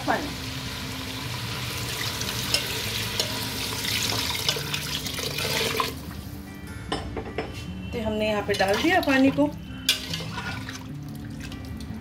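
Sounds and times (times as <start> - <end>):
water pouring and splashing: 3.6 - 6.1, 10.0 - 12.0.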